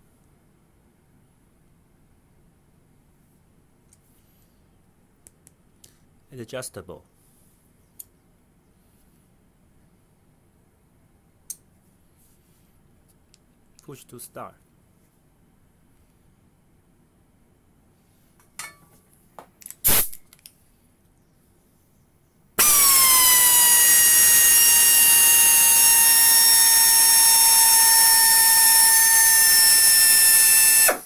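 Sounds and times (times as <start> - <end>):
tool handling clicks and knocks: 18.4 - 20.6
air screwdriver running: 19.9 - 20.2, 22.6 - 31.0.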